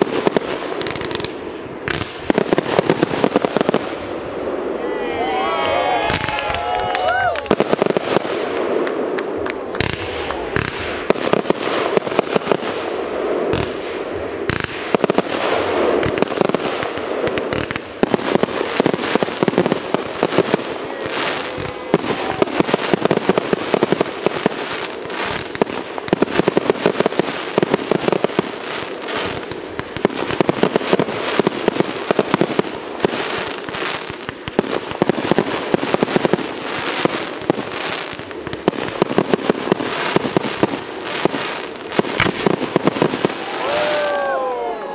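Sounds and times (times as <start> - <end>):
fireworks bursting and crackling: 0.0 - 44.9.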